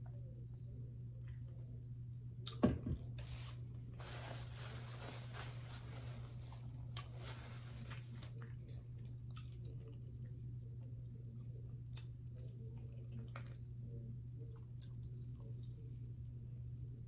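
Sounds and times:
low electrical hum: 0:00.0 - 0:17.0
paper napkin crinkling: 0:03.3 - 0:08.4.

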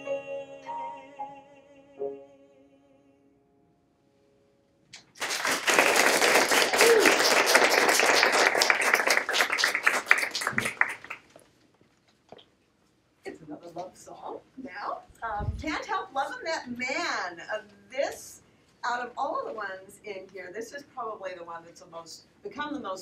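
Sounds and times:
piano chord: 0:00.0 - 0:03.6
audience applause: 0:05.0 - 0:11.3.

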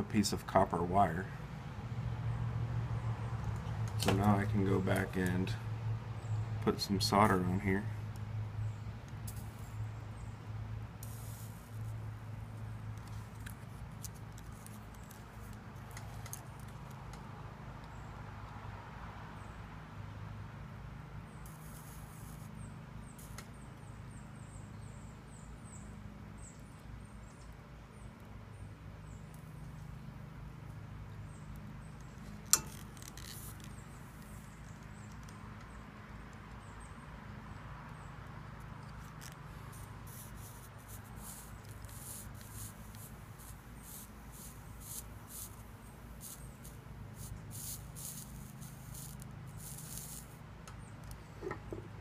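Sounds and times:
soldering iron scraping and crackling: 0:32.4 - 0:34.4, 0:39.0 - 0:50.4.

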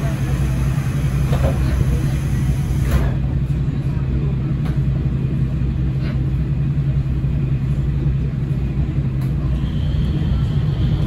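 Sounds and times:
diesel engine rumble and hum: 0:00.0 - 0:11.0.

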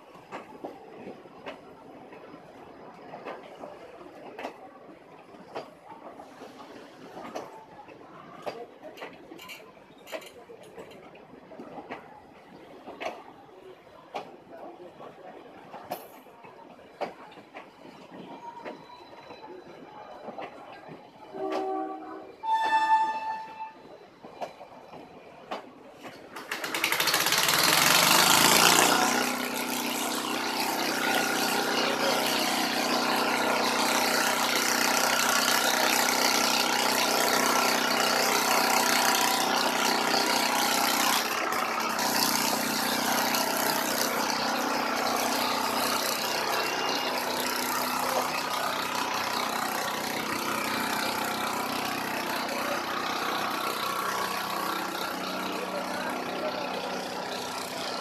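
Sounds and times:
engine hum with hiss: 0:26.8 - 0:58.0.

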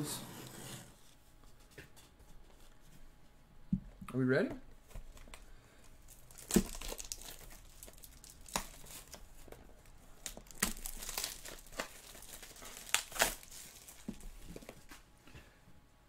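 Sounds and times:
plastic wrap crinkling: 0:06.0 - 0:14.8.

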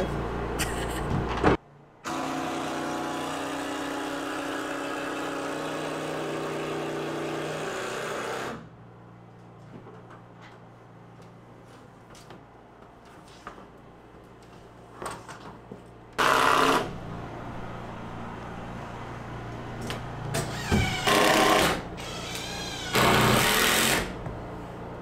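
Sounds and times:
power drill driving fasteners: 0:20.3 - 0:24.2.

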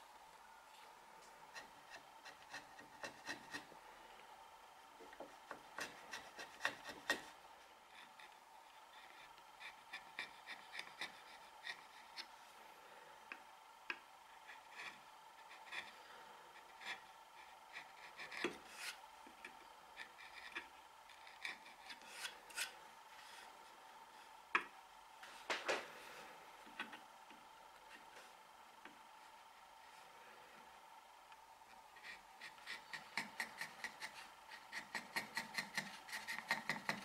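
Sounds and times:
steel tool scraping wood: 0:01.5 - 0:03.7, 0:05.7 - 0:12.3, 0:16.6 - 0:19.0, 0:19.9 - 0:23.5, 0:32.0 - 0:37.0.

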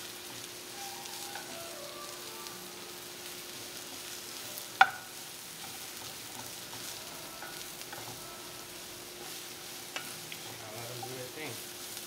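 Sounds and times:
mushrooms sizzling in skillet: 0:00.0 - 0:12.0
spatula clacking against pan: 0:04.8 - 0:11.2.

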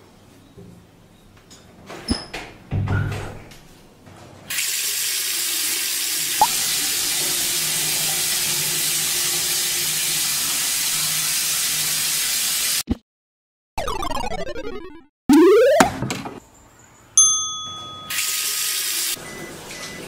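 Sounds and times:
tap water running into sink: 0:04.6 - 0:12.6.

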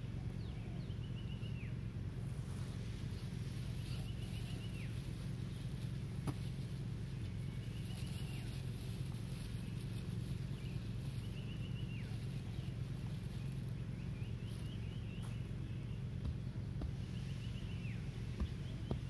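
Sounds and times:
bird calling: 0:00.0 - 0:19.0
steady low rumble: 0:00.0 - 0:19.0.

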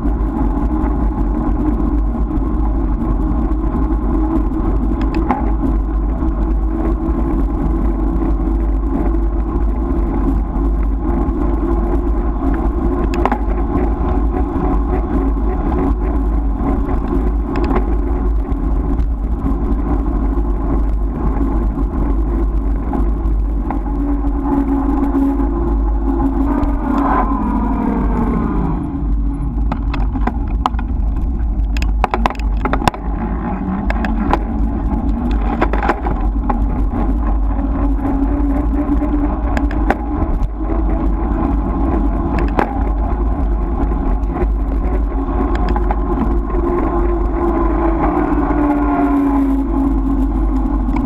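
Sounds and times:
vehicle engine running: 0:00.0 - 0:51.0
wind rumble on microphone: 0:00.0 - 0:51.0.

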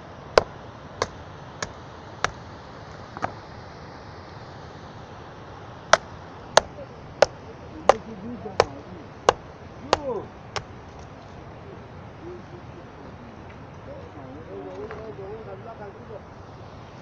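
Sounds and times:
tool striking timber: 0:00.4 - 0:02.4, 0:08.6 - 0:10.7.

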